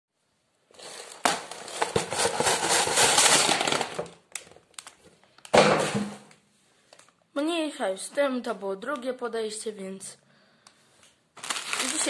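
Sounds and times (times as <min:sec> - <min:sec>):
plastic bags crinkling: 0:00.7 - 0:06.0, 0:11.4 - 0:12.0
plastic bricks clattering: 0:00.8 - 0:06.3
bricks crashing onto wooden floor: 0:01.2 - 0:04.2, 0:05.5 - 0:06.3.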